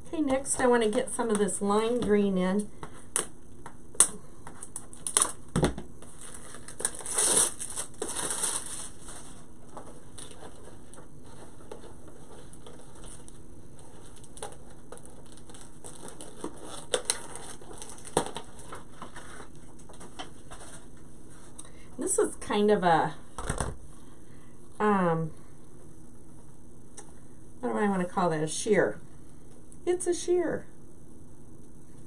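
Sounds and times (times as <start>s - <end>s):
ribbon rustling and crinkling: 4.0s - 21.6s.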